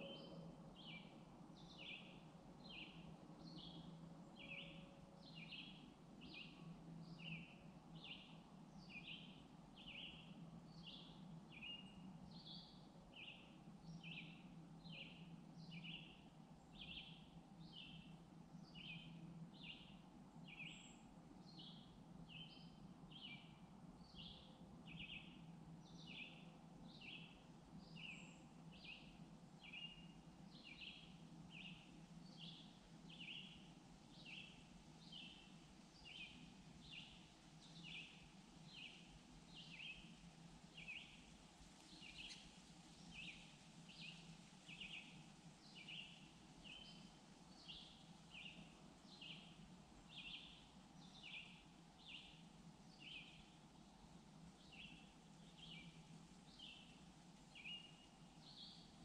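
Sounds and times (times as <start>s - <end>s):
bird chirping: 0.0s - 13.4s, 41.9s - 49.5s.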